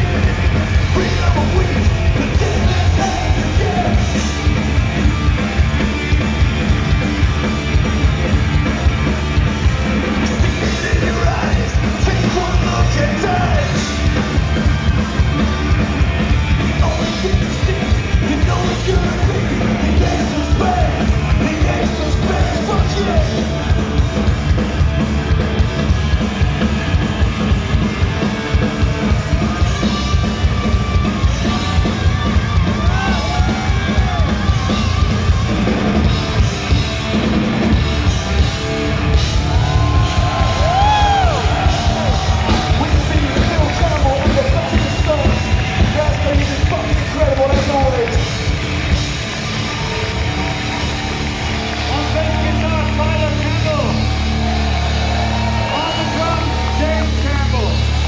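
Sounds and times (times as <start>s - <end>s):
person yelling and singing: 0.0s - 4.3s, 10.6s - 13.8s, 16.6s - 23.4s
live rock band playing: 0.0s - 58.0s.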